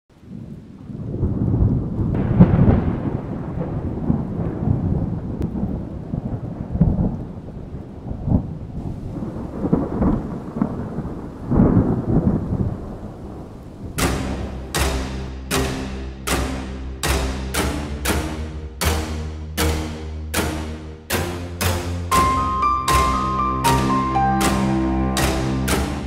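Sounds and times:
rain pattering: 0.1s - 26.0s
rolling thunder: 0.2s - 16.4s.

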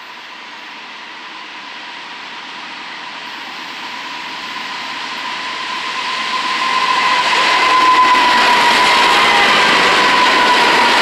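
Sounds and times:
freight locomotives passing: 0.0s - 11.0s
high whine: 3.2s - 11.0s.

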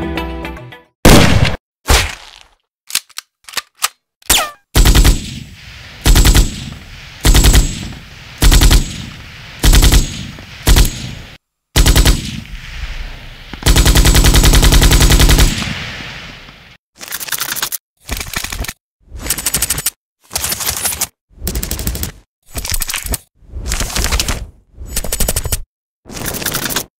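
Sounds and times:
single gunshot: 1.1s - 2.2s
machine-gun bursts: 4.8s - 5.2s, 6.0s - 6.6s, 7.2s - 9.0s, 9.6s - 11.0s, 11.8s - 12.2s, 13.6s - 15.6s.

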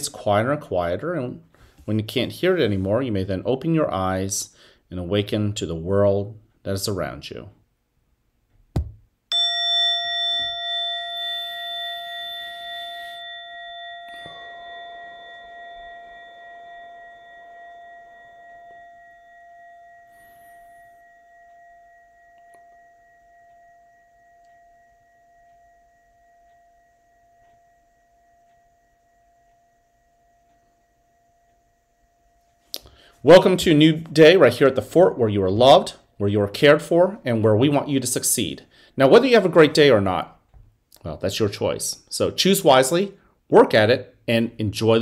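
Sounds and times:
meditation bell ringing: 9.3s - 40.2s.

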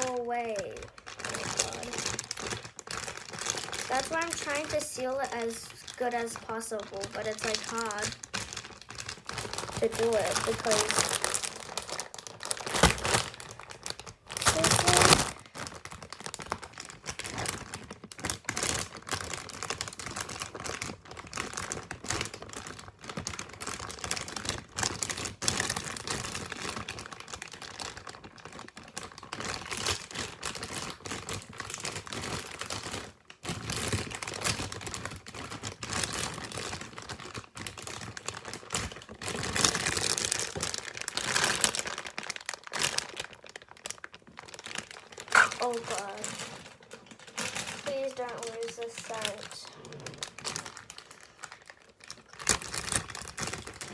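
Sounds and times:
plastic bag crinkling: 0.0s - 53.9s.

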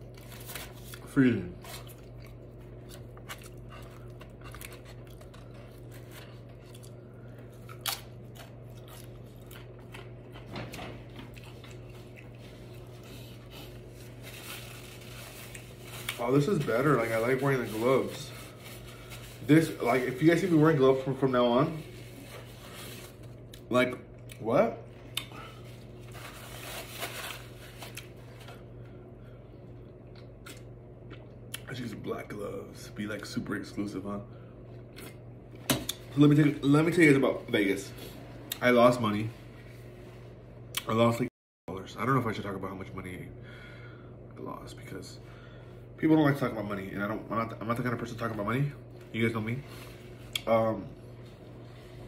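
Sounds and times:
chewing and crunching chip: 0.0s - 10.5s, 11.1s - 18.2s
steady low hum: 0.0s - 52.0s.

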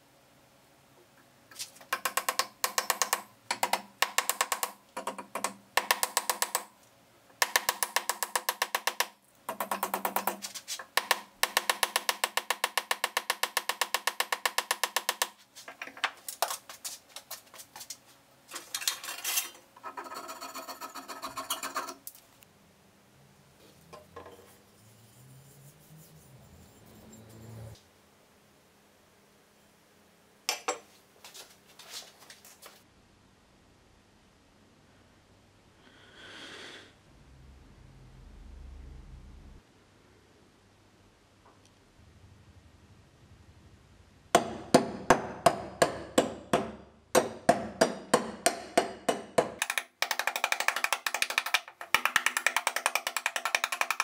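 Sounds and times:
mallet tapping wooden wedge: 1.9s - 6.7s, 7.4s - 15.4s, 44.4s - 54.0s.

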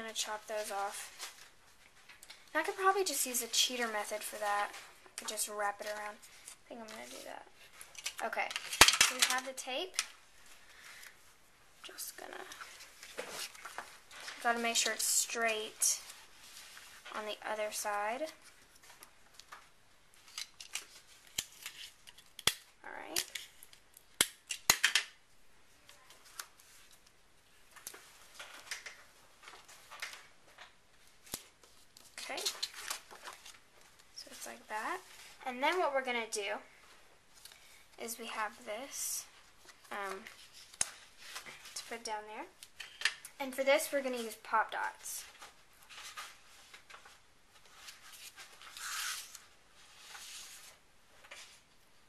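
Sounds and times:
papery scratch: 48.1s - 49.4s.

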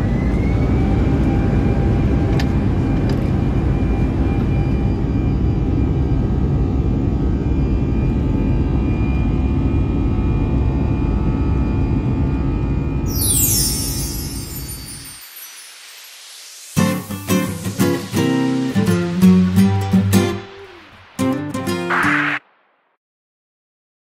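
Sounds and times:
jet engines whining: 13.1s - 22.7s.

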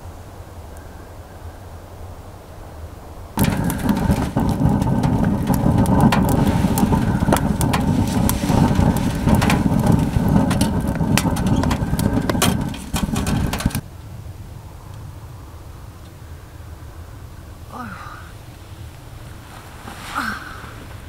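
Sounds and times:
wood fire roaring and crackling: 3.3s - 13.8s.

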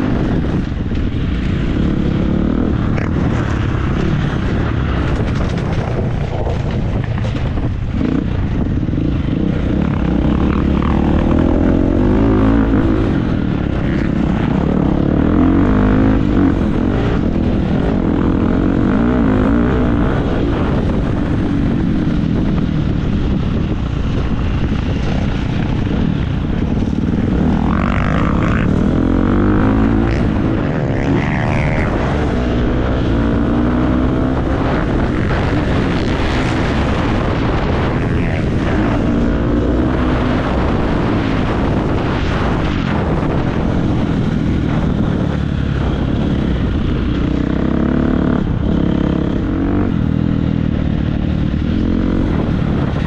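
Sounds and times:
motocross engine revving: 9.0s - 21.3s, 27.0s - 50.1s.

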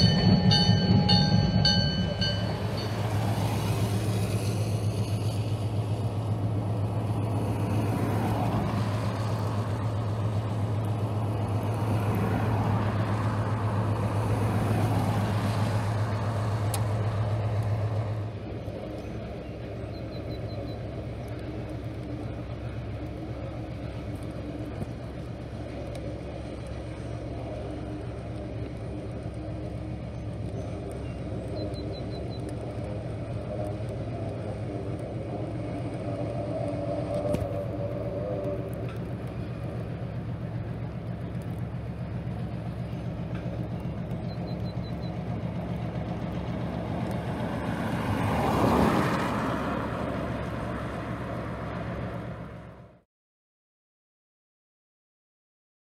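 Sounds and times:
car passing by: 0.0s - 18.3s, 44.8s - 53.0s
diesel locomotive engine droning: 0.0s - 53.0s.

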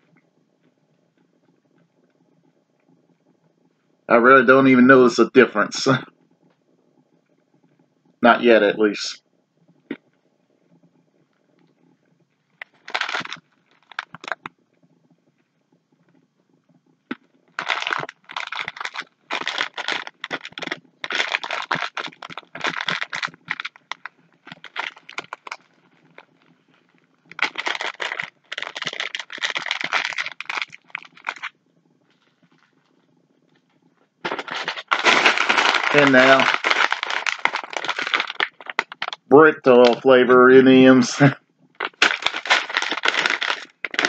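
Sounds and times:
plastic bags crinkling: 12.6s - 14.5s, 17.6s - 26.4s, 27.3s - 31.5s, 34.2s - 40.0s, 41.8s - 44.0s.

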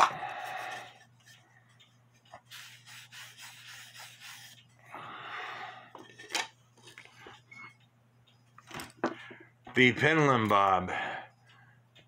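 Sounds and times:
hand rubbing wooden part: 2.3s - 4.6s.

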